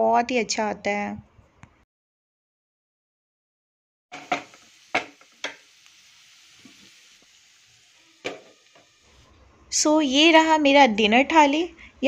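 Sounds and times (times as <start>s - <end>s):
vegetables sizzling in a pan: 4.1s - 9.4s.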